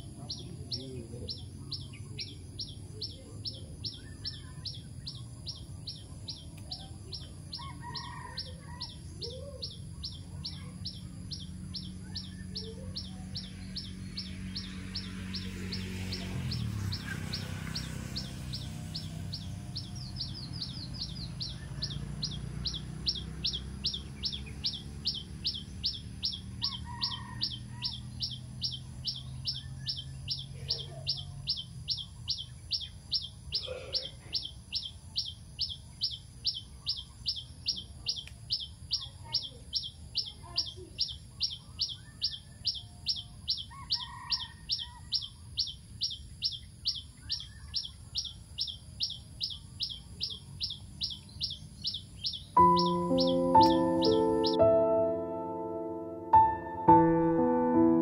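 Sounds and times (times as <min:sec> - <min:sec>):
bird chirping: 0:00.0 - 0:58.0.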